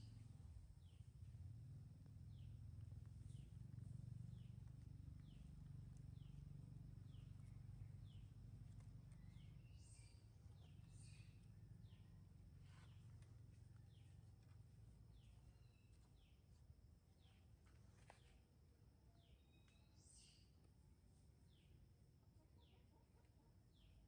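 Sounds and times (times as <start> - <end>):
low rumble: 0.0 - 14.2.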